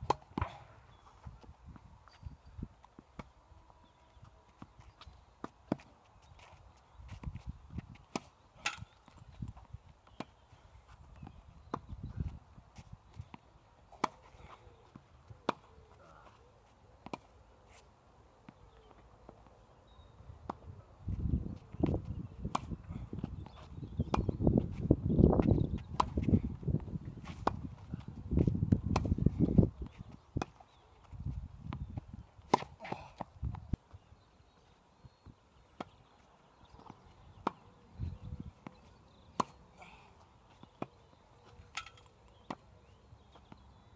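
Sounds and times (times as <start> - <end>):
tennis balls struck and bouncing: 0.0 - 0.9, 4.2 - 10.4, 12.7 - 16.0, 17.0 - 17.5, 21.8 - 30.6, 31.6 - 33.6, 35.6 - 36.1, 36.7 - 39.7, 41.6 - 43.8.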